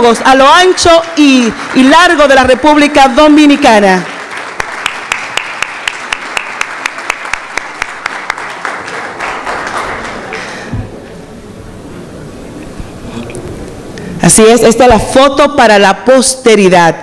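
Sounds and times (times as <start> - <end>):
sharp rhythmic claps: 4.0 - 10.9
audience applauding: 4.0 - 11.1.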